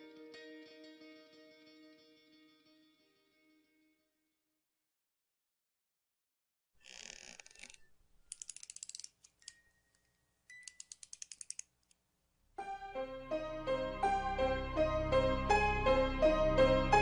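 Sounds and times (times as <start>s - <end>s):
plucked harpsichord-like music: 12.6s - 17.0s.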